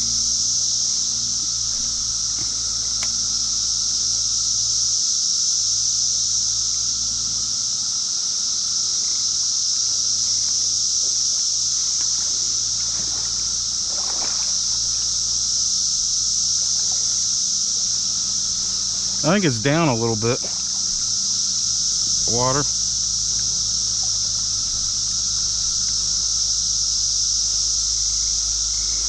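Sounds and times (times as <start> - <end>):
creek water running: 0.0 - 4.8, 8.8 - 29.0
insects droning: 0.0 - 29.0
light wading splashes: 11.1 - 26.8.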